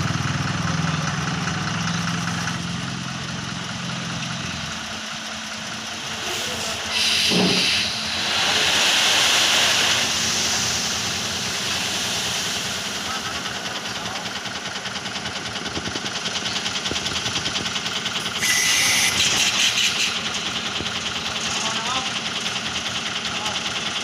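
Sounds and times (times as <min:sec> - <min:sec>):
diesel truck engine humming: 0:00.0 - 0:24.0
sand sliding with hissing rush: 0:06.0 - 0:14.2.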